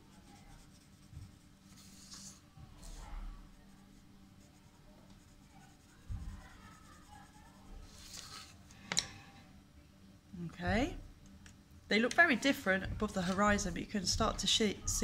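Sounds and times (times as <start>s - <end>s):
pencil scratching on paper: 0.0s - 8.6s.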